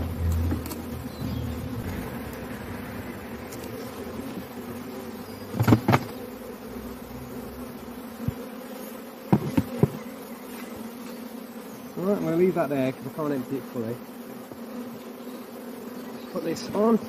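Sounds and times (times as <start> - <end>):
honeybees buzzing: 0.0 - 17.0
knocks on a box: 5.6 - 6.1, 9.3 - 10.0.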